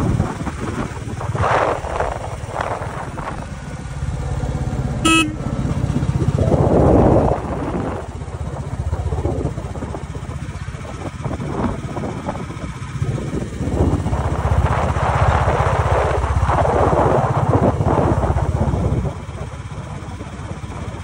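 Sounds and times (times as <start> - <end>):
road and wind noise: 0.0 - 21.0
horn beep: 5.0 - 5.5
motorcycle engine thumping: 5.0 - 6.1.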